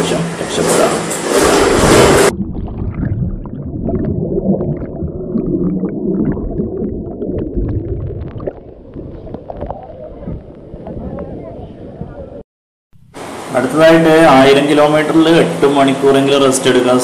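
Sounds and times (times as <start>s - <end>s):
muffled underwater churning: 1.4s - 11.6s.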